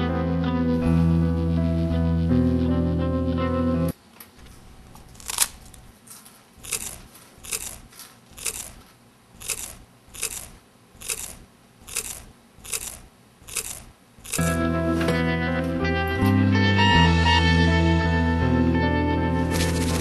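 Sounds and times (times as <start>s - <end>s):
person chewing crunchy food: 5.0s - 5.9s, 6.6s - 14.5s.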